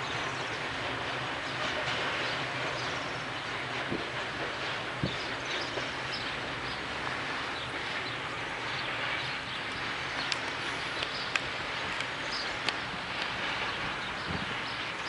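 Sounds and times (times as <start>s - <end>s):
freight train wagons rolling: 0.0s - 15.0s
birds chirping: 5.0s - 15.0s.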